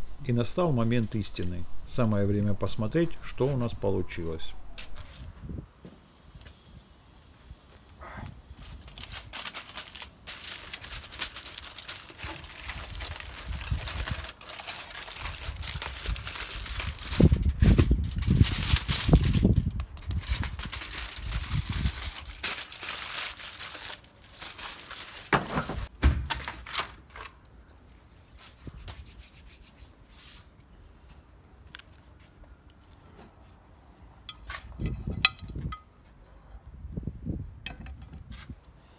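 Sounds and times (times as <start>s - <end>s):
aluminium foil crinkling: 8.5s - 28.6s.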